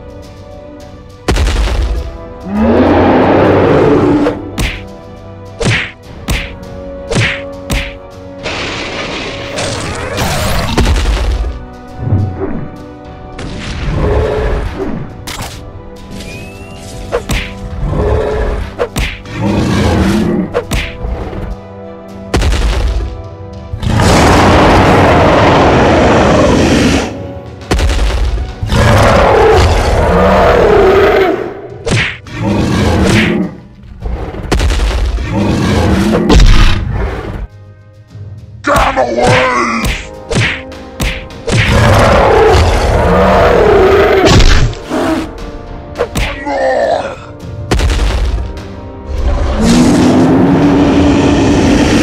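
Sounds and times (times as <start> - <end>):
background music: 0.0 - 52.0
monster roar: 23.8 - 27.2, 46.4 - 47.4, 49.2 - 52.0.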